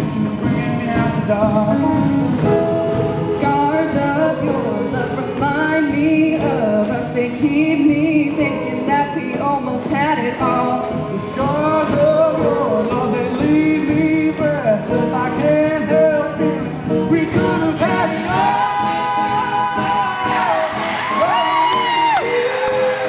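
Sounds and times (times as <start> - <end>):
mixed choir singing in harmony: 17.8 - 21.2.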